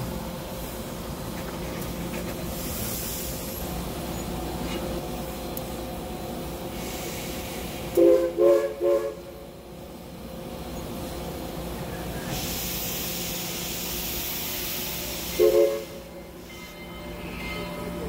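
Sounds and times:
steam hissing: 0.0s - 5.2s, 6.2s - 10.2s, 10.8s - 17.9s
steam locomotive whistle blasts: 7.8s - 9.4s, 14.4s - 17.7s.

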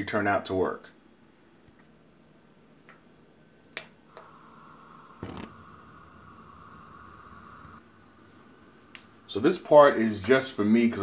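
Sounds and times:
gas burner hissing: 4.0s - 11.0s.

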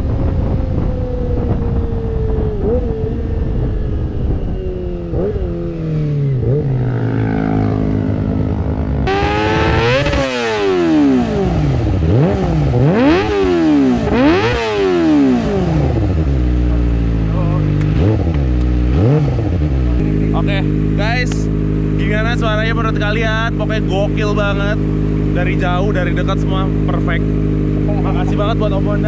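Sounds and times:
motorcycle engine revving: 0.0s - 29.0s.

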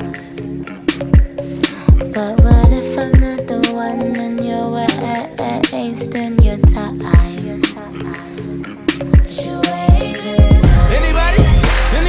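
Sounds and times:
deep sliding bass notes: 10.6s - 12.0s.

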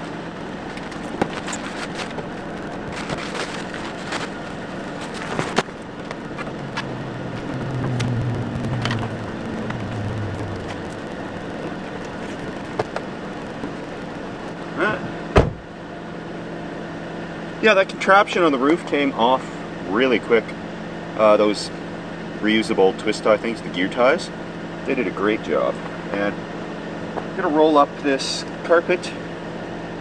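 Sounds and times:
deeper hum: 0.0s - 15.9s
car engine idling hum: 0.0s - 30.0s.

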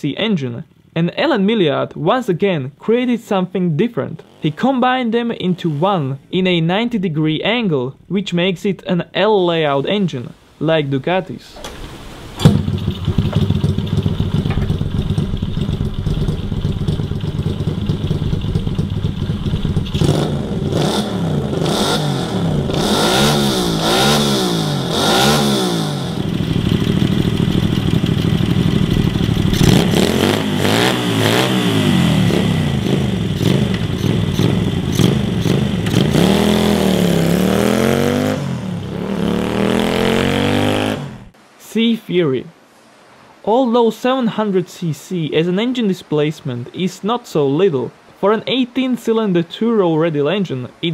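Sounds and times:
motorcycle engine revving: 4.1s - 6.3s, 12.4s - 41.4s.

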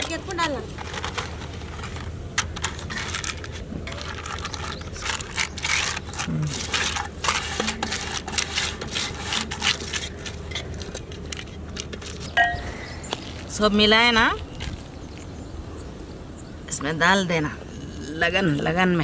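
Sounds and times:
paper crinkling: 0.0s - 12.3s
paper rubbing against metal pan: 2.9s - 10.8s.

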